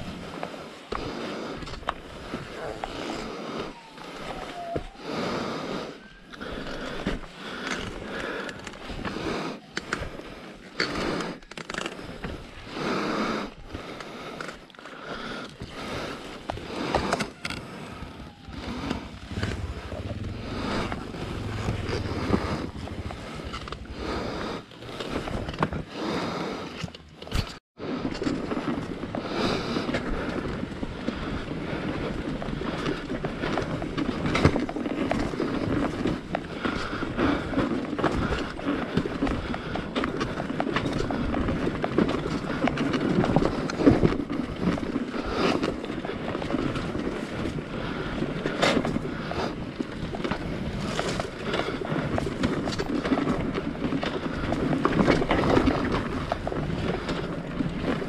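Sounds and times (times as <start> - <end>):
motorcycle engine rumble: 17.0 - 27.5.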